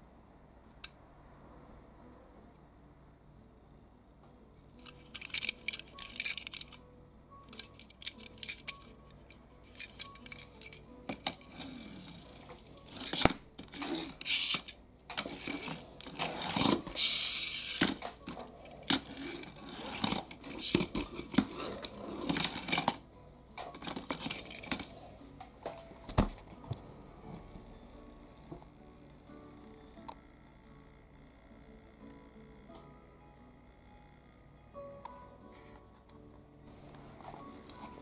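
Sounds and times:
toy car clicks and taps: 4.8 - 6.8, 7.5 - 12.4, 13.0 - 21.5.

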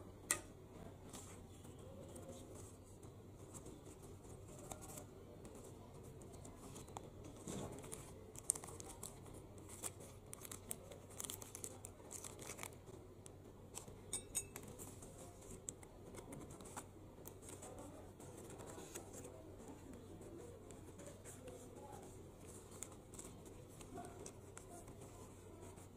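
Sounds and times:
small crackles and clicks: 3.0 - 25.9
plastic bag crinkling: 7.5 - 12.8.

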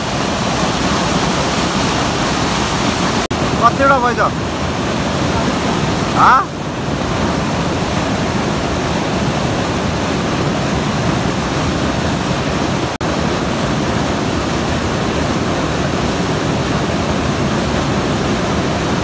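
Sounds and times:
rushing mountain stream: 0.0 - 19.0.

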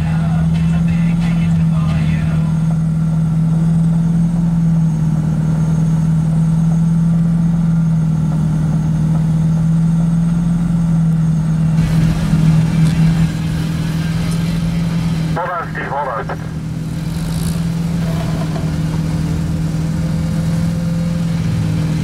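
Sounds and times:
truck engine humming: 0.0 - 22.0
rush of noise: 11.8 - 22.0.

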